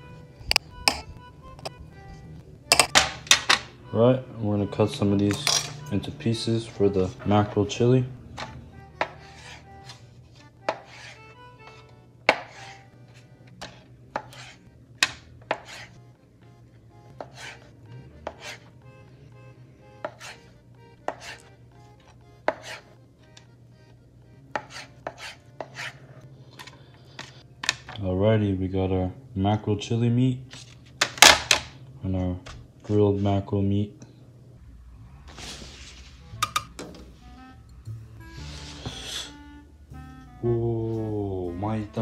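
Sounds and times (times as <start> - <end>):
knife chopping on cutting board: 9.0 - 10.0, 10.7 - 11.2, 12.2 - 12.8, 13.6 - 16.0, 17.2 - 17.6, 18.2 - 18.7, 20.0 - 20.4, 21.1 - 21.5, 22.4 - 22.8, 24.5 - 26.0.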